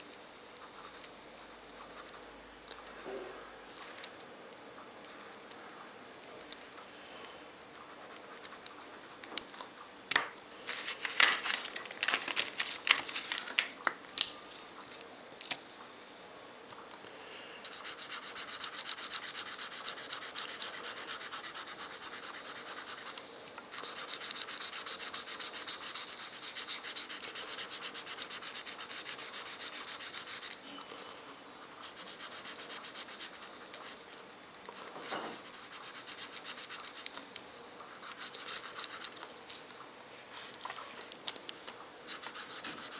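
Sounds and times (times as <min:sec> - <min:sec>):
marker scribbling on paper: 0:17.7 - 0:30.6, 0:31.7 - 0:33.5, 0:35.4 - 0:37.1, 0:38.0 - 0:39.1, 0:42.1 - 0:42.9
marker tapping and inking lines: 0:17.7 - 0:30.6, 0:35.3 - 0:37.2, 0:38.0 - 0:39.2, 0:42.1 - 0:42.9.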